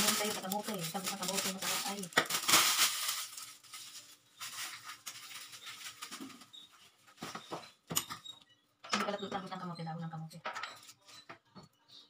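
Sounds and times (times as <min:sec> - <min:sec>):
leaves rustling: 0:00.0 - 0:06.5.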